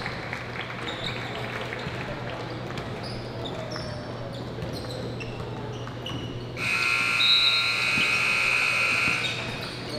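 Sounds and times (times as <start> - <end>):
sneaker squeaks: 3.0 - 9.9
scoreboard horn buzzing: 6.6 - 9.5.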